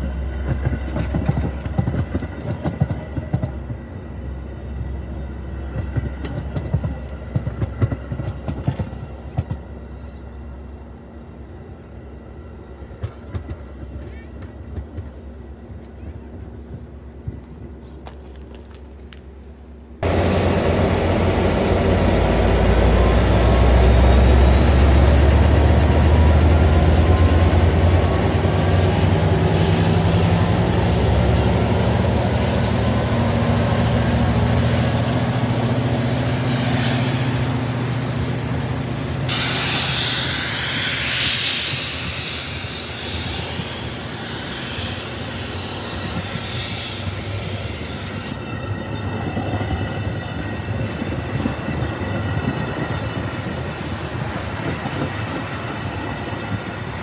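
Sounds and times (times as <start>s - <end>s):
diesel locomotive engine rumble: 0.0s - 57.0s
train wheels on rails: 0.0s - 57.0s
loud hiss: 20.0s - 21.2s, 39.3s - 48.2s.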